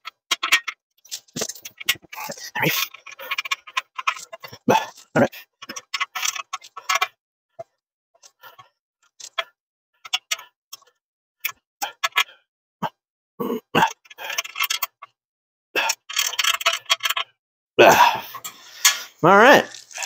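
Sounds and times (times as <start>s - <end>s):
metal bolt clicks and rattles: 0.0s - 7.1s, 9.2s - 12.2s, 14.3s - 15.1s, 15.9s - 17.3s.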